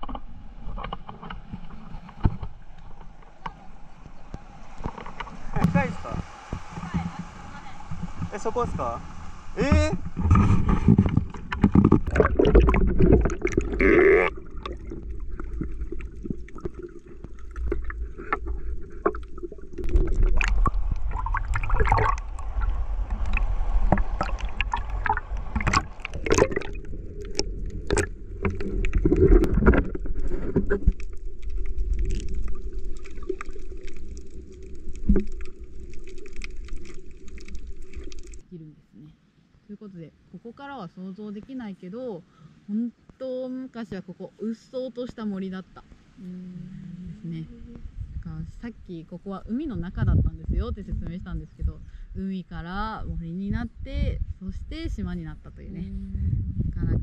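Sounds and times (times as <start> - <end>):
knocks and rumble from water: 0.0 - 38.5
water sloshing and splashing: 0.0 - 38.5
muffled underwater bubbling: 5.3 - 38.5.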